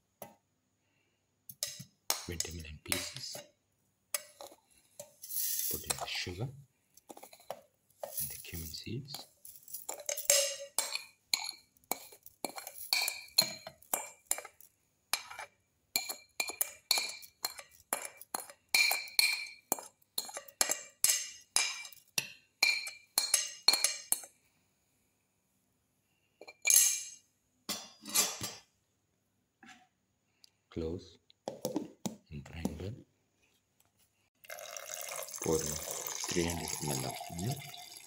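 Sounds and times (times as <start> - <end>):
spoon tapping on steel jar: 9.9 - 24.3.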